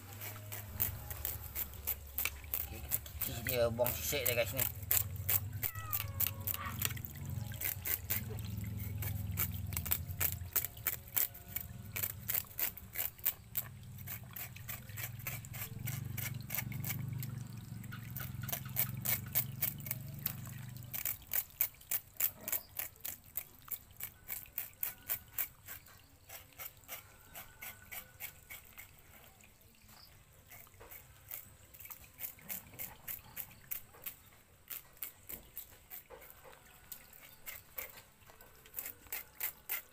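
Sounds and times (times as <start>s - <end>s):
knife scraping scales: 0.0s - 17.2s, 18.0s - 29.2s, 30.5s - 39.9s.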